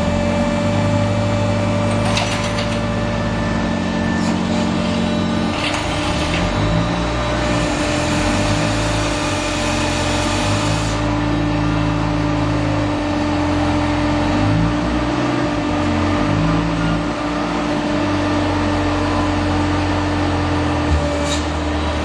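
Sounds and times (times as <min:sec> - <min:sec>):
machine hum with constant tone: 0:00.0 - 0:22.0.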